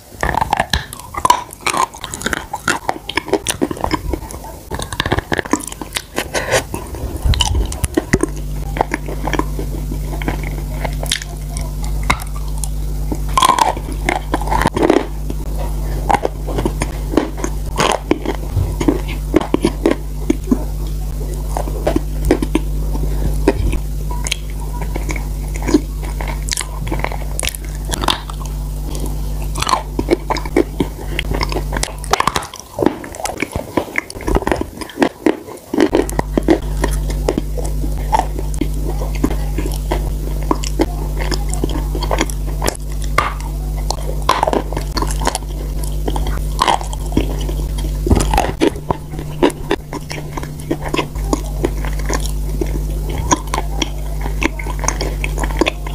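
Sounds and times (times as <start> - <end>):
chewing and lip smacks: 0.0 - 55.9
low electrical hum: 0.0 - 55.9.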